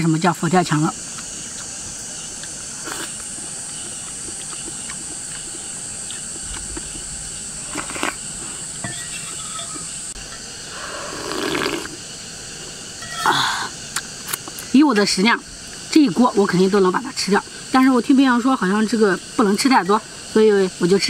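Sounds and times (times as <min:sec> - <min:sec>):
insects droning: 0:00.0 - 0:21.0
eating clicks: 0:02.4 - 0:07.0
slurping broth: 0:07.6 - 0:08.6, 0:10.7 - 0:12.0.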